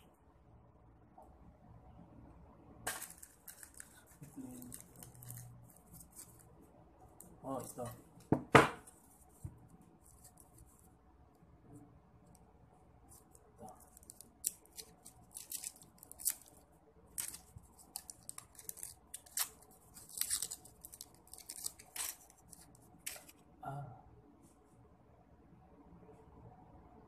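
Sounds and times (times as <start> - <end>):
candy wrapper crinkling: 2.9 - 6.5, 13.2 - 23.4.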